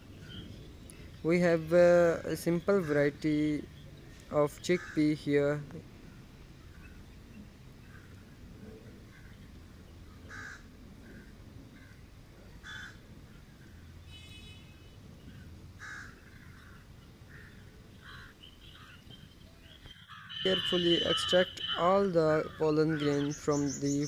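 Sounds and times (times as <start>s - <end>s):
crows cawing: 4.8s - 5.2s, 7.8s - 8.3s, 9.1s - 9.4s, 10.3s - 12.0s, 12.6s - 13.6s, 15.8s - 19.0s, 19.9s - 21.7s, 22.4s - 23.6s.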